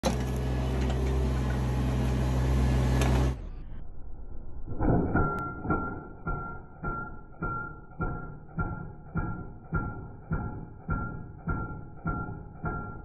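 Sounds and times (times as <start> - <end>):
excavator engine running: 0.0 - 3.7.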